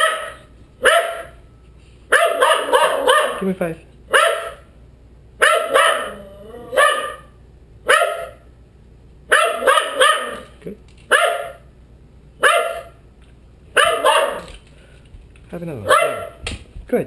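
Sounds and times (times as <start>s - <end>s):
dogs barking: 0.0s - 1.4s, 2.1s - 3.5s, 4.1s - 4.7s, 5.4s - 8.5s, 9.3s - 11.7s, 12.4s - 13.0s, 13.7s - 14.6s, 15.8s - 16.4s.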